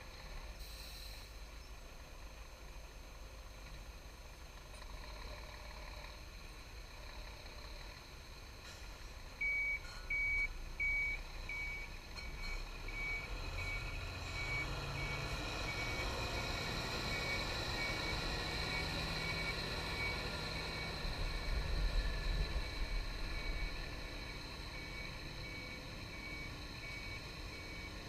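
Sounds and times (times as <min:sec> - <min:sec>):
diesel engine running: 0:00.0 - 0:28.0
truck reversing alarm beeping: 0:08.8 - 0:28.0.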